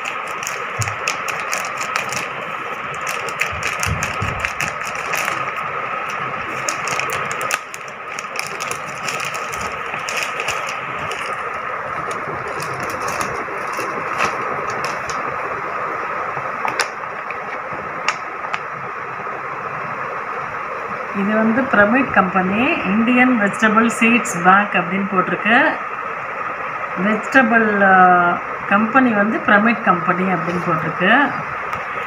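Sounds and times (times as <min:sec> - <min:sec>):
plastic mailer crinkling: 0:00.0 - 0:15.6
steady mechanical hum: 0:00.0 - 0:32.0.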